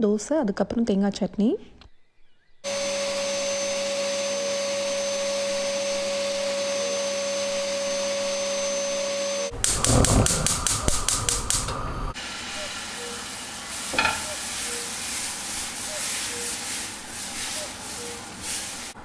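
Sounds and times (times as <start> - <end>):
vacuum cleaner running: 2.6 - 19.0
gas stove burner clicks: 9.6 - 11.8.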